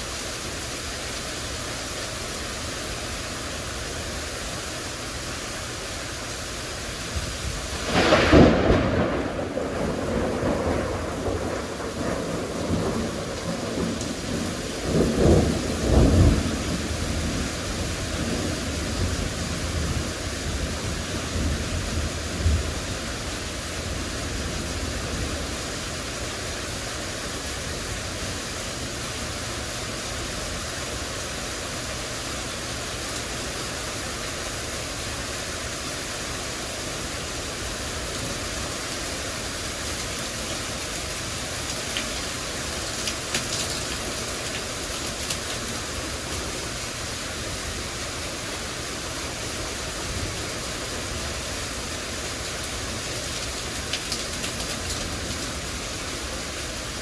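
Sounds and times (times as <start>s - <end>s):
heavy rain pouring: 0.0s - 57.0s
thunder rumbling: 7.5s - 22.8s.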